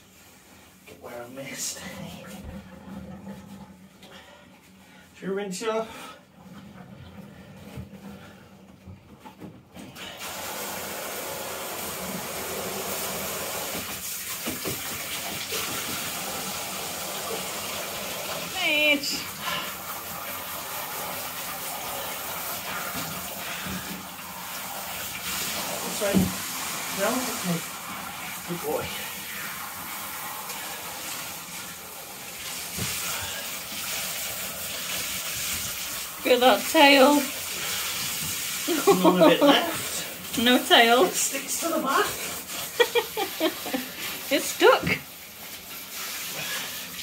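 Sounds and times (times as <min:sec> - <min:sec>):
shower head spraying water: 0:10.1 - 0:47.0.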